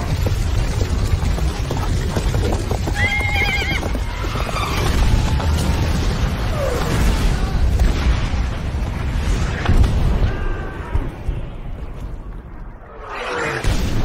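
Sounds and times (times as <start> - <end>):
hooves knocking: 0.0 - 6.0
horse whinnying: 2.9 - 5.0.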